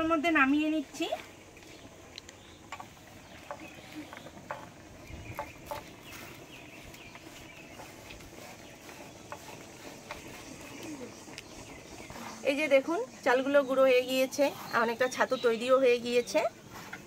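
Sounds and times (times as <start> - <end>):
faint bird calls: 1.2 - 12.5.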